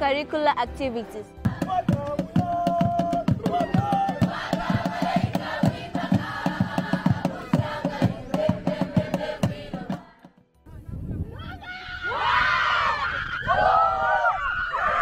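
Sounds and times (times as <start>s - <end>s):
hand drums beating: 1.4s - 10.5s
group singing: 1.5s - 2.3s, 3.4s - 10.4s.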